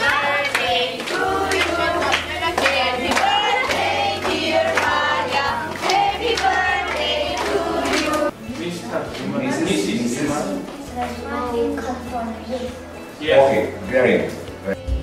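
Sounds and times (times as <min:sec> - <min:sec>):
group of voices singing: 0:00.0 - 0:08.4
hand clapping: 0:00.0 - 0:08.7.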